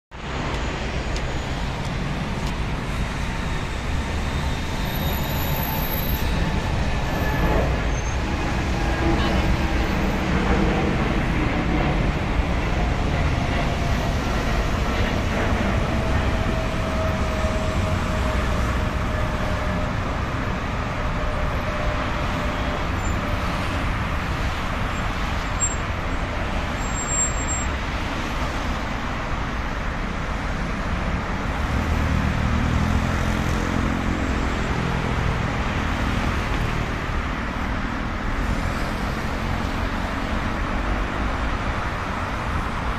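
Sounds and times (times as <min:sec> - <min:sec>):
heavy vehicle engine hum: 0:00.1 - 0:42.9
highway traffic roar: 0:00.1 - 0:42.9
jet airliner whine: 0:00.2 - 0:27.9.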